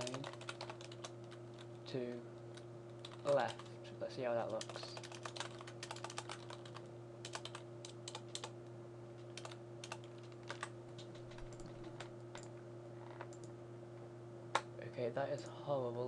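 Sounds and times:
keyboard keystrokes: 0.0 - 1.1, 9.3 - 12.5
low electrical hum: 0.0 - 16.0.

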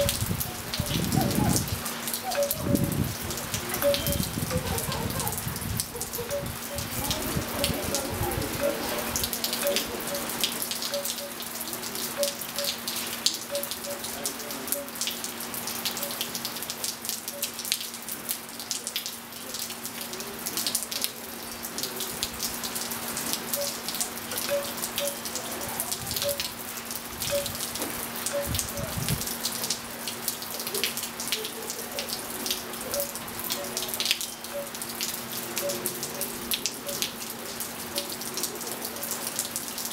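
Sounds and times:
rain on pool and patio: 0.0 - 39.9
water drips and plinks: 0.0 - 39.9.

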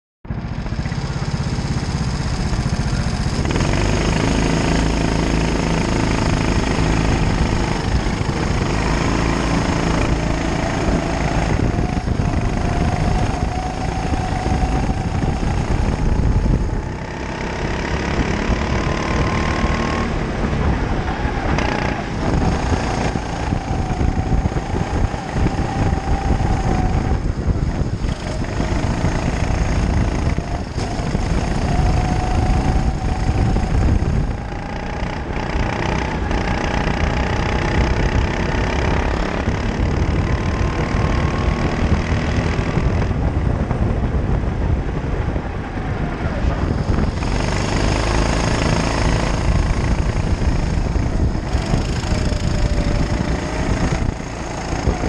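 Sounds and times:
go-kart engine revving: 0.3 - 55.0.

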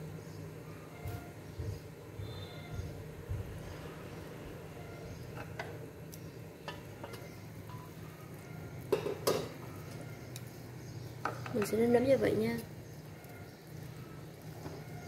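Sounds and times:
metal lid clanking: 8.9 - 9.6.

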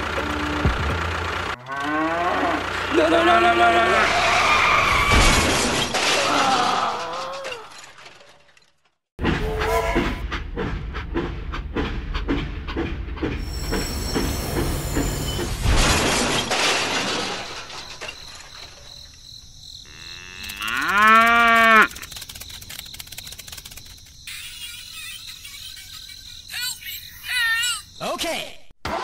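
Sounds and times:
cow mooing: 1.6 - 2.8, 19.9 - 21.9
crash: 4.7 - 10.2, 14.4 - 19.0
toy train rumble: 20.3 - 27.8
toy train wheels clicking: 20.4 - 27.4.

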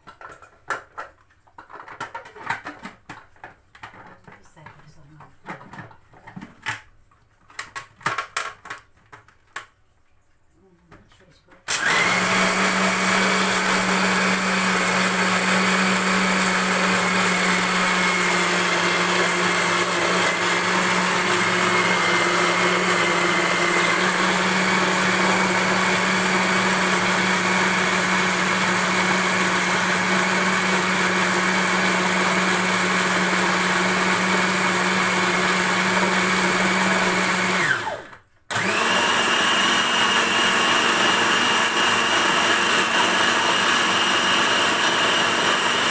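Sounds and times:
blender grinding rice: 11.7 - 45.9.

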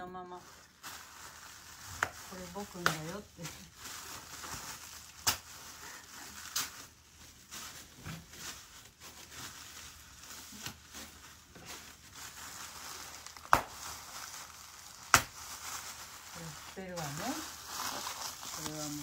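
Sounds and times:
packing material crinkling: 0.0 - 19.0.

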